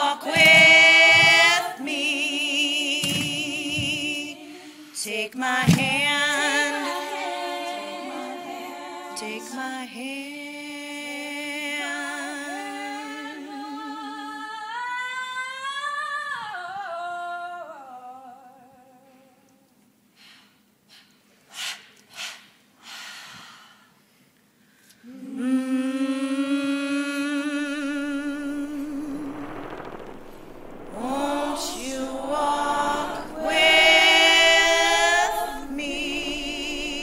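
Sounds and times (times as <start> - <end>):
soft breathy noises: 20.1 - 25.3.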